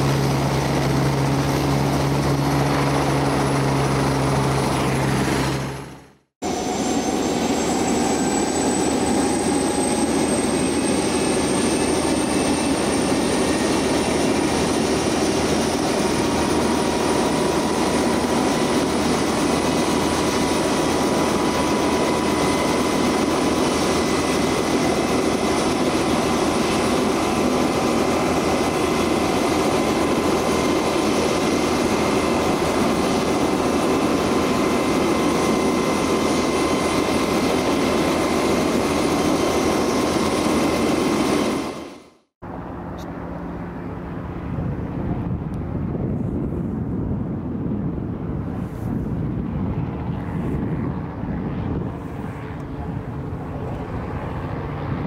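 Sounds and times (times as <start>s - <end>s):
aircraft turbine engines whining: 0.0s - 55.0s
low engine hum: 42.4s - 55.0s.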